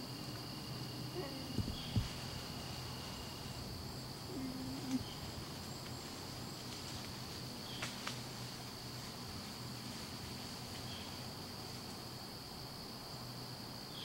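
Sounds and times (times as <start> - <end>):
high buzz of insects: 0.0 - 14.0
bear cub calling: 4.3 - 5.3.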